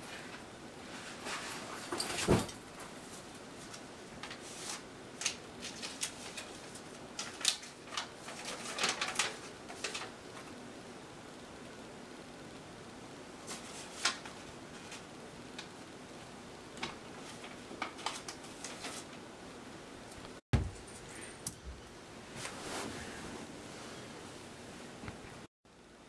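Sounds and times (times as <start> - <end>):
heavy thump: 20.6 - 20.8.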